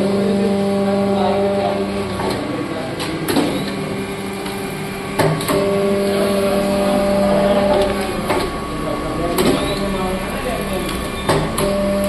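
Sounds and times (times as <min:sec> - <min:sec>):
electric motor hum: 0:03.8 - 0:12.0.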